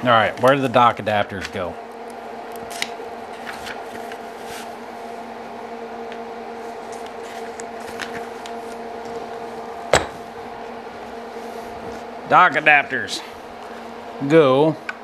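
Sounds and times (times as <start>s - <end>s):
low electrical hum: 0.0s - 15.0s
paper pages turning: 2.6s - 4.7s.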